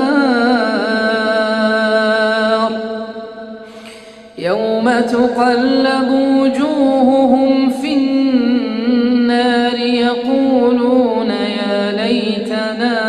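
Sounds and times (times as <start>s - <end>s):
man chanting melodically: 4.4s - 13.0s.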